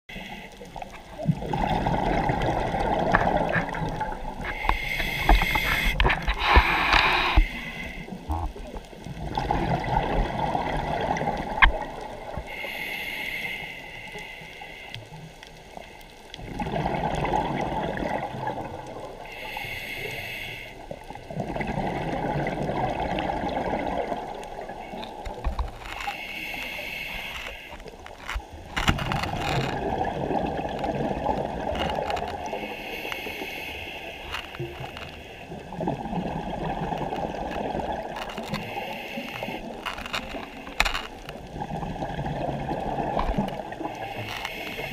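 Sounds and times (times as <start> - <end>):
exhaled bubbles burbling: 1.1 - 4.6, 8.3 - 12.4, 16.4 - 19.1, 21.2 - 25.5, 29.0 - 32.5, 35.5 - 38.6, 41.2 - 44.0
scuba regulator inhaling hiss: 4.4 - 8.1, 12.4 - 15.0, 19.2 - 20.9, 26.0 - 27.9, 32.4 - 35.6, 38.6 - 39.8, 43.8 - 44.9.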